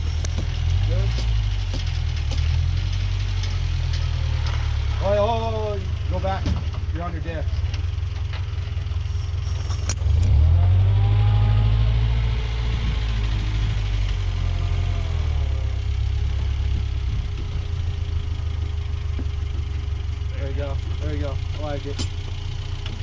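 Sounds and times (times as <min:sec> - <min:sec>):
truck engine running and revving: 0:00.0 - 0:23.0.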